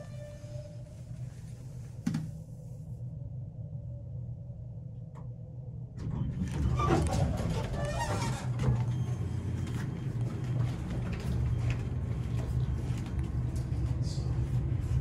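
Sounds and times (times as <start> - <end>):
low hum of machinery: 0.0 - 15.0.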